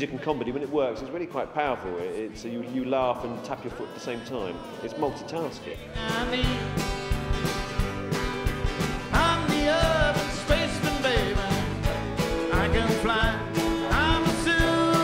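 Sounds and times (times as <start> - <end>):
guitar: 1.6 - 15.0
person singing: 3.6 - 7.0, 9.1 - 15.0
steady drum beat: 5.8 - 15.0.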